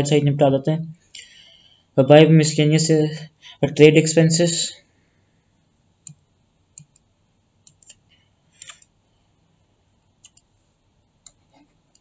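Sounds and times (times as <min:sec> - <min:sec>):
computer mouse clicks: 0:06.0 - 0:09.0, 0:10.2 - 0:10.5, 0:11.2 - 0:12.0.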